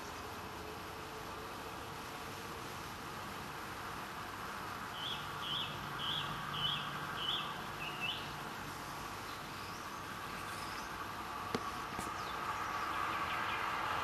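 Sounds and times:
steady outdoor hiss: 0.0 - 14.0
bird chirping: 4.9 - 11.0, 11.6 - 13.7.

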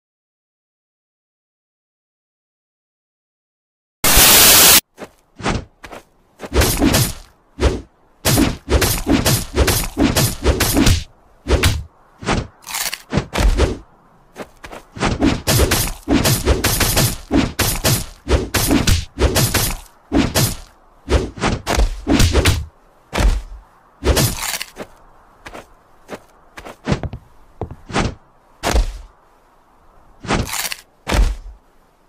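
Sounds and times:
cartoon fight hits and thuds: 6.4 - 12.5, 13.1 - 13.8, 15.0 - 24.6, 26.8 - 29.1, 30.2 - 31.6.

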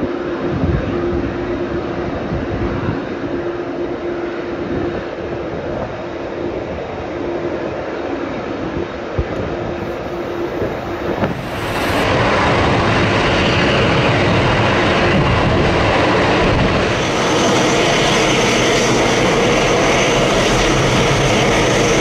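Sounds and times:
jet engines running: 9.2 - 22.0
faint high whine: 9.7 - 14.0.

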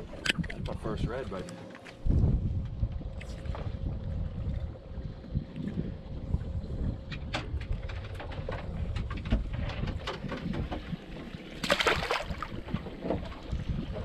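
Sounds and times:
wind rumbling on microphone: 0.0 - 14.0
fish splashing into water: 11.6 - 12.6.

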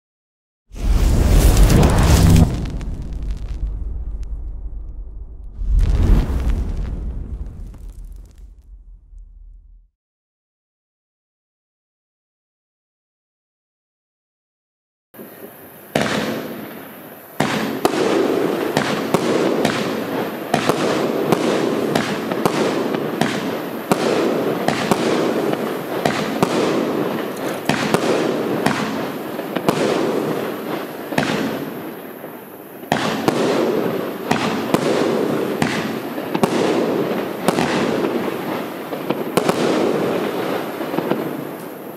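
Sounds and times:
crackling glitter bursts: 0.8 - 9.8
firework shots launching: 0.8 - 9.9, 39.0 - 41.8.

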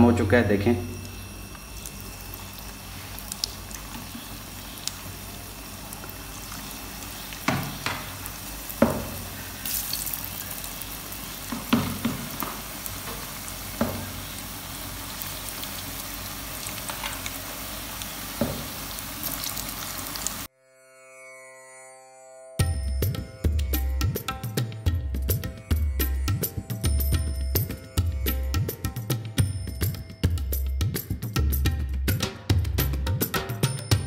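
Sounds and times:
batter sizzling in hot oil: 0.1 - 20.5
sharp knocks in pan: 7.4 - 8.2, 8.8 - 9.2, 11.5 - 13.2, 13.8 - 14.2, 18.4 - 18.8.

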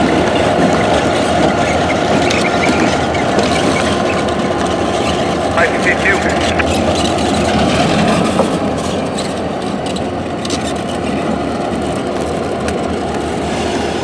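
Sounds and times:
diesel locomotives droning: 0.0 - 14.0.

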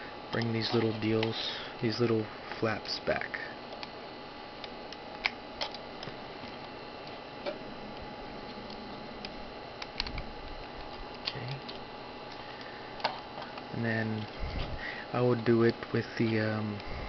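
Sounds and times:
steady background hiss: 0.0 - 17.0.

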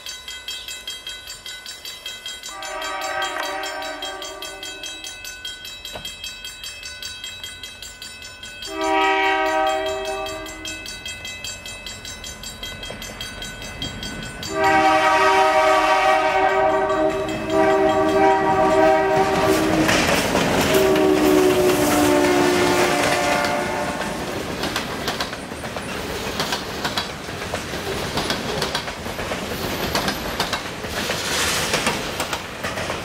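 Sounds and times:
locomotive air horn blasts: 2.5 - 4.9, 8.7 - 10.7, 14.5 - 24.2
locomotive engines rumbling: 11.9 - 30.9
wheels clacking over rail joints: 16.5 - 33.0.

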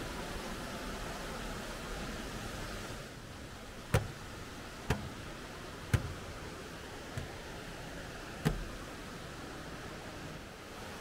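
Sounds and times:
stream rushing: 0.0 - 11.0
footsteps clanking on metal bridge: 3.9 - 6.4.

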